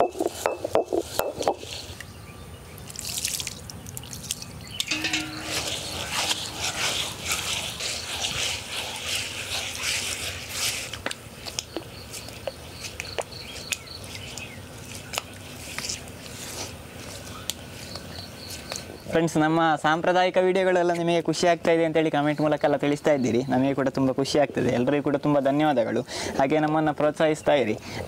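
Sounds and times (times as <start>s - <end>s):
stone grinder grating wet rice: 5.2s - 11.2s.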